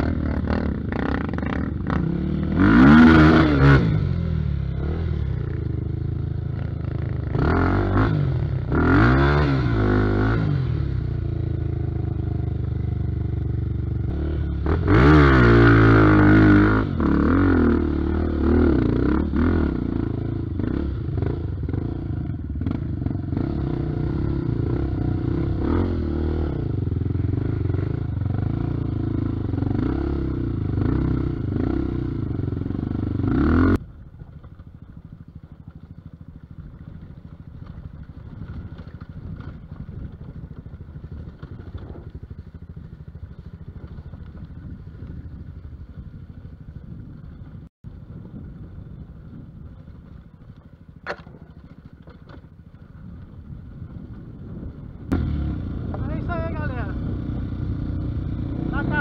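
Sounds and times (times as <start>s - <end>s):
motorcycle engine running hard: 0.0s - 59.0s
bike clattering over rough ground: 33.9s - 47.7s, 49.2s - 54.4s.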